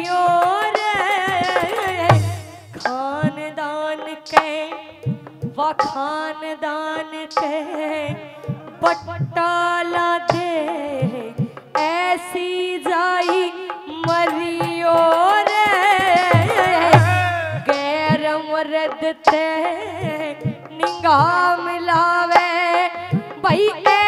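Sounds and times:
woman singing into a microphone: 0.0 - 24.0
hand drum strokes: 13.2 - 24.0.

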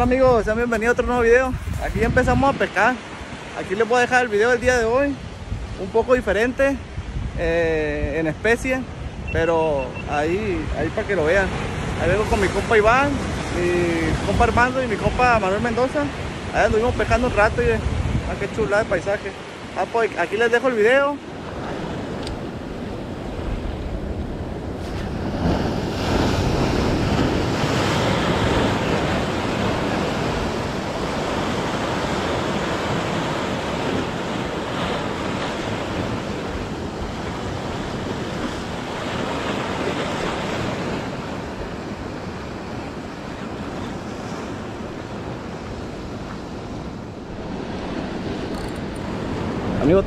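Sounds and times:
wind buffeting microphone: 0.0 - 3.6, 4.6 - 5.9, 6.6 - 8.2, 16.2 - 19.0, 21.3 - 50.0
surf breaking over rocks: 9.4 - 50.0.

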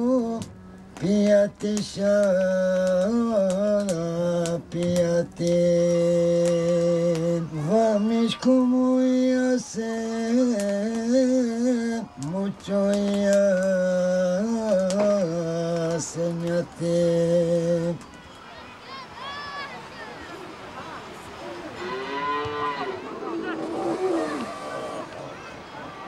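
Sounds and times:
person singing slow song: 0.0 - 18.1.

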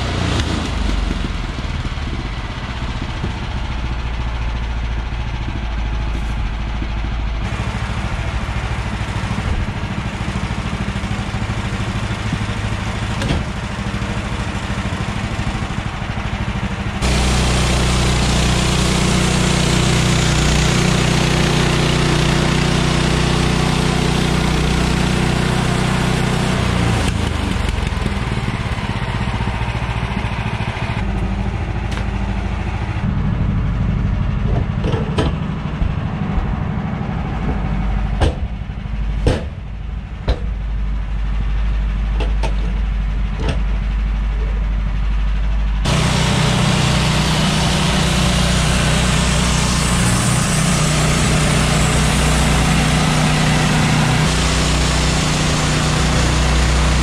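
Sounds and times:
gas engine running: 0.0 - 57.0
band blade sawing log: 17.0 - 27.8, 45.9 - 57.0
sharp wooden knocks: 38.2 - 38.5, 39.2 - 39.6, 40.3 - 40.5.

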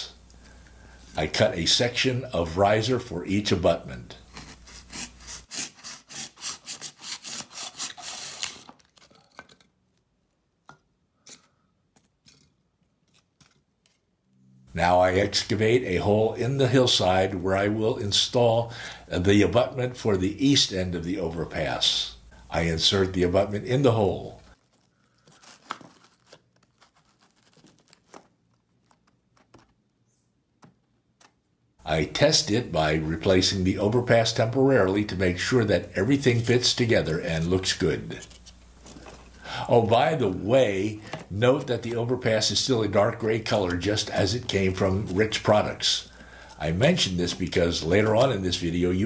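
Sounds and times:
blade sawing through foam: 4.7 - 8.6
faint clicks and taps: 28.1 - 30.0.

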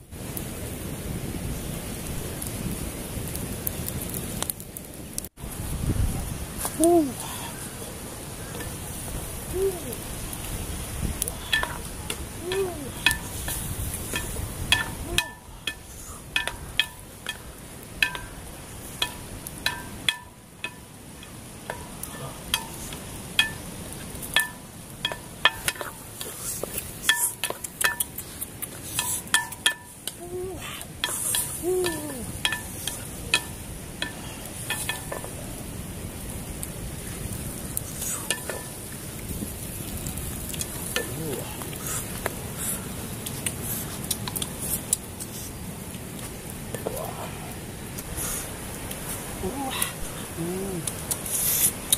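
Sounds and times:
chicken sizzling in a metal pot: 8.5 - 28.2.

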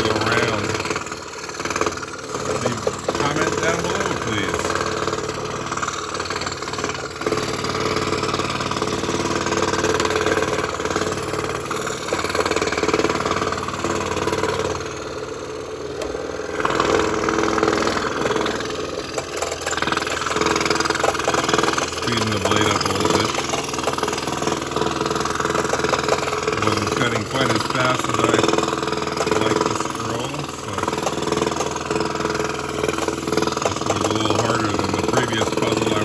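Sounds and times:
scroll saw cutting wood: 0.0 - 36.0.

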